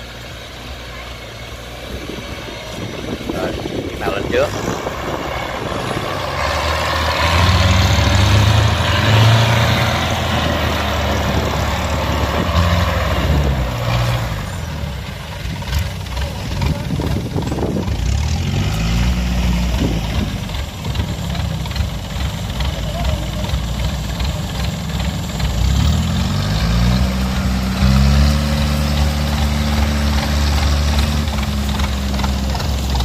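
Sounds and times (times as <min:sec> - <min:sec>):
small engine running under load: 0:00.0 - 0:33.0
tracks clattering: 0:19.7 - 0:33.0.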